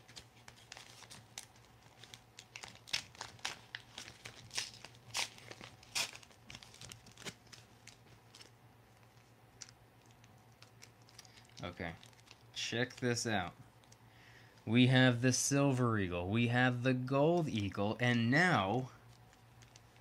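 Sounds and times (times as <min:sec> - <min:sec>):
packaging crinkling: 0:00.0 - 0:13.1, 0:19.1 - 0:20.0
tape ripping: 0:00.1 - 0:08.5.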